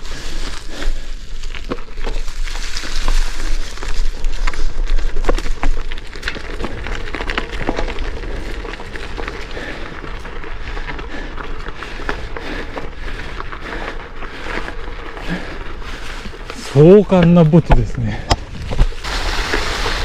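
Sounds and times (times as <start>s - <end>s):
bike tyres crunching on gravel: 0.0s - 20.0s
small clicks of stones: 1.4s - 10.3s.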